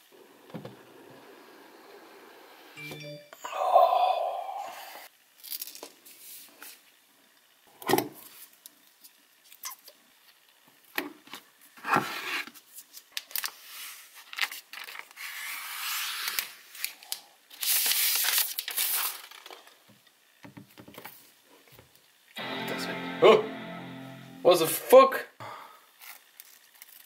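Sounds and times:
packaging tearing and crinkling: 0:16.2 - 0:19.7, 0:26.0 - 0:27.0.

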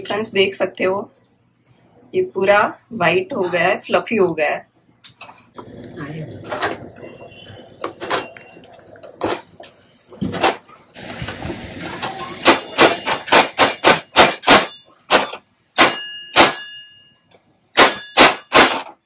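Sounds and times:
hot oil sizzling: 0:11.0 - 0:12.8
metallic clanks with ringing: 0:12.6 - 0:19.0.

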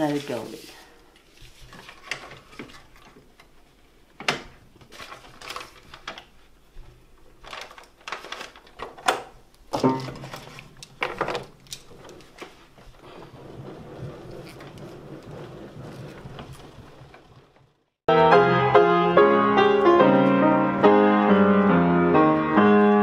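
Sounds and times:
paper roll clicks and knocks: 0:07.4 - 0:17.4.

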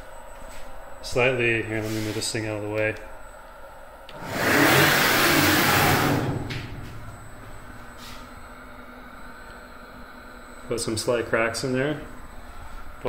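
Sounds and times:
router gantry whirring rush: 0:04.1 - 0:06.5.

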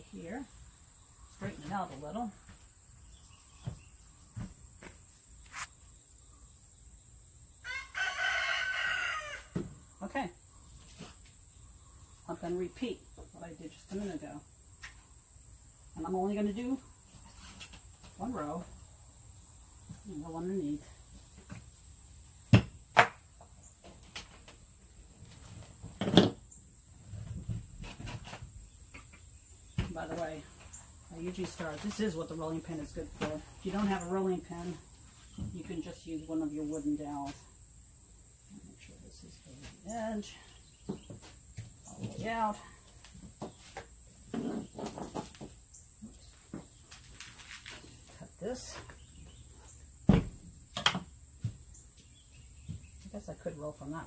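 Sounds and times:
rooster crowing: 0:07.6 - 0:09.5.

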